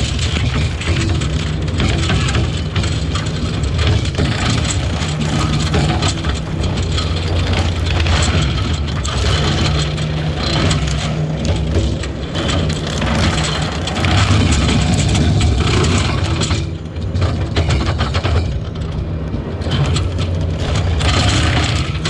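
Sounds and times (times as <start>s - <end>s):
crackling rattling noise: 0.0s - 22.0s
heavy engine running: 0.0s - 22.0s.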